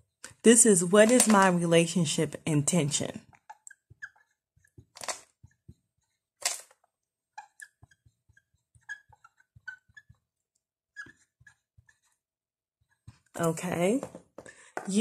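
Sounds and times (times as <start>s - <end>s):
marker squeaking on whiteboard: 3.2s - 13.4s.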